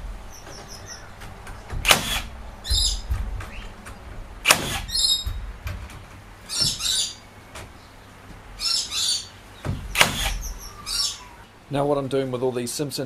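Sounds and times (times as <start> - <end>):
birds chirping: 0.0 - 12.7
nailer firing shots: 1.7 - 3.6, 4.4 - 5.7, 9.7 - 10.6.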